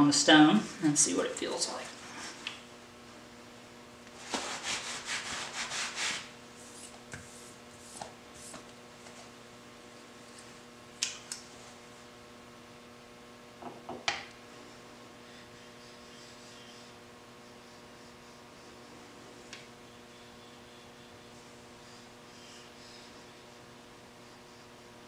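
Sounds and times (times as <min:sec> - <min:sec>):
mains hum: 0:00.0 - 0:25.0
cloth rubbing on metal: 0:04.2 - 0:08.6.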